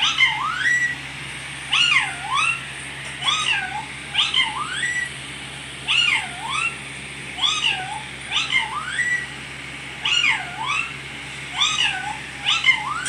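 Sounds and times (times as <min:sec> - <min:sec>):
parrot making meow-like calls: 0:10.0 - 0:10.9.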